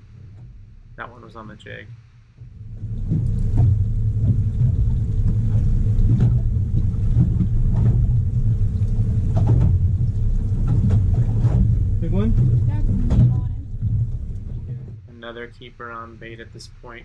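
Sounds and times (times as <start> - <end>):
wind buffeting microphone: 2.4 - 15.0.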